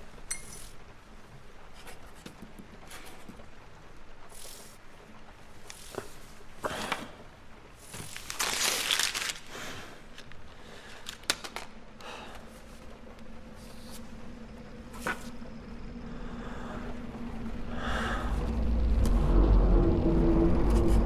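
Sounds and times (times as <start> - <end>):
paper rustling and crumpling: 7.8 - 11.8.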